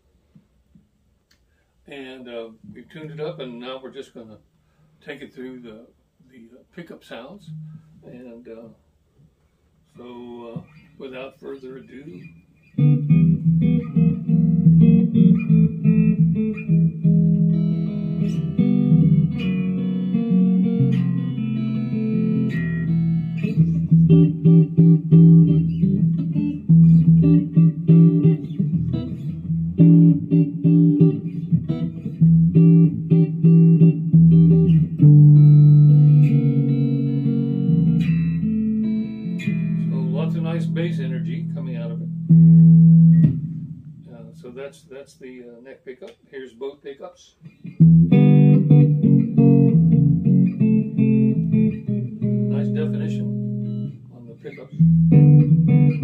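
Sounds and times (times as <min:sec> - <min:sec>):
electric guitar chords and notes: 0:07.4 - 0:07.9, 0:12.2 - 0:44.3, 0:47.4 - 0:56.0.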